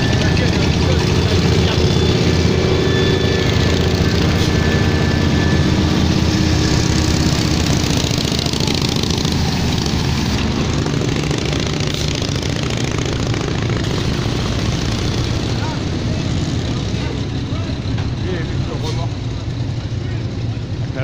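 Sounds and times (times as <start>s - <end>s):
old vehicle engines: 0.0s - 21.0s
truck engine driving past: 0.0s - 21.0s.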